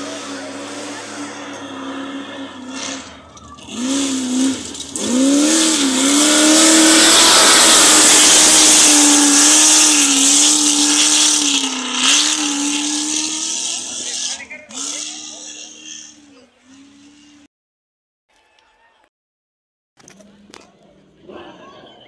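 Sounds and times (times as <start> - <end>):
vehicle rushing past: 0.0 - 17.4
buggy engine revving hard: 0.0 - 17.5.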